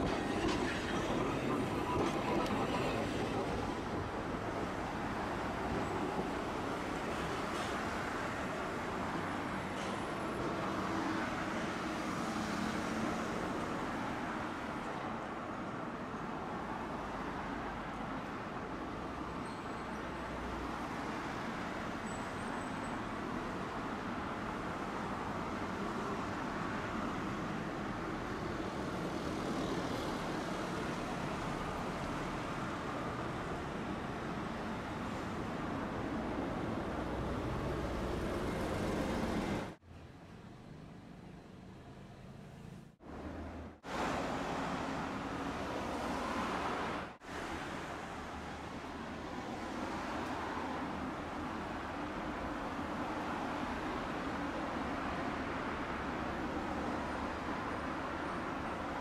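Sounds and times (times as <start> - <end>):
streetcar running on tracks: 0.0 - 39.8
road traffic passing: 22.9 - 59.0.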